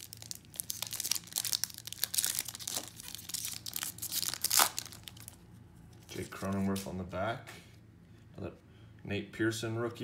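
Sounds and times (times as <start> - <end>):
foil wrapper tearing and crinkling: 0.0 - 5.4.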